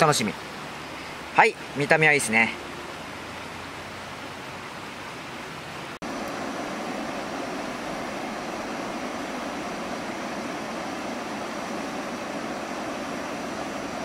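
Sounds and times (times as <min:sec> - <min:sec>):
broth simmering: 0:06.0 - 0:14.0
gas burner hissing: 0:06.0 - 0:14.0.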